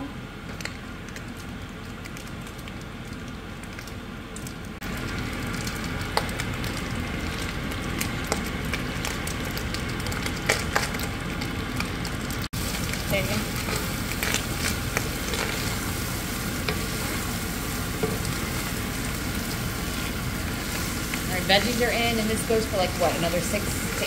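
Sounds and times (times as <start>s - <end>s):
crackles and pops: 0.4s - 21.8s
food sizzling in a pan: 4.9s - 24.0s
wooden spoon stirring: 12.6s - 24.0s.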